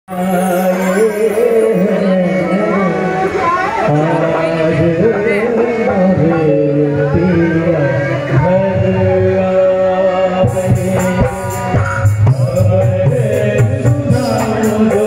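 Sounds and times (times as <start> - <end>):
instrumental accompaniment: 0.1 - 15.0
man singing into microphone: 0.1 - 15.0.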